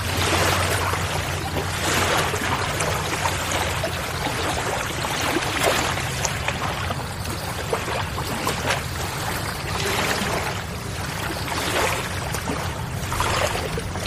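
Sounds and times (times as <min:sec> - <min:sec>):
low hum: 0:00.0 - 0:14.0
rushing water-like noise: 0:00.0 - 0:14.0.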